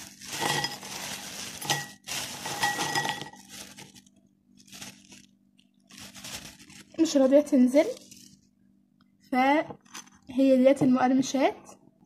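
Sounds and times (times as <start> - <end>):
snacks rattling into ceramic bowl: 0.0 - 4.1.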